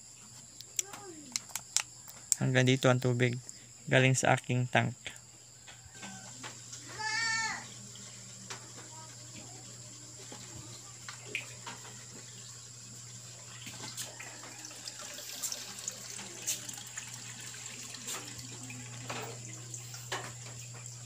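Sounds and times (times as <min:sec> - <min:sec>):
water splashing and trickling: 0:06.0 - 0:21.0.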